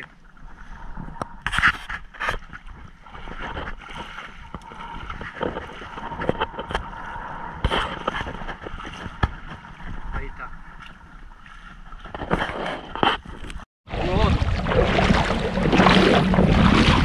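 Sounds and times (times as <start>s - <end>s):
shallow water sloshing: 0.0s - 17.0s.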